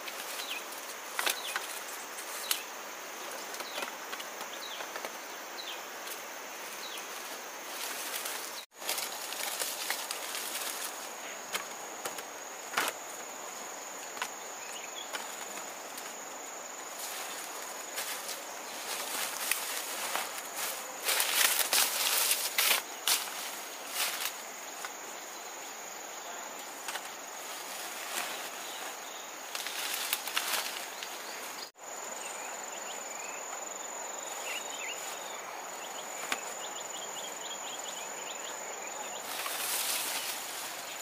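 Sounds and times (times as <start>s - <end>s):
dry leaves rustling: 6.0s - 13.6s, 14.2s - 25.2s, 26.6s - 31.7s, 39.2s - 41.0s.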